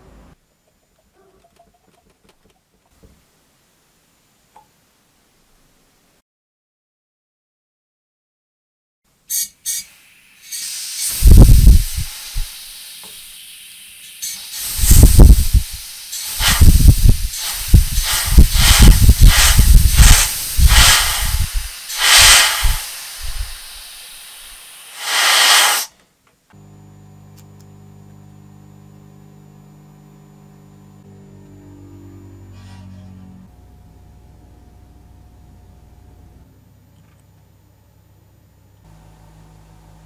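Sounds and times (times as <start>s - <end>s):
steam valve hissing spurts: 9.3s - 26.0s.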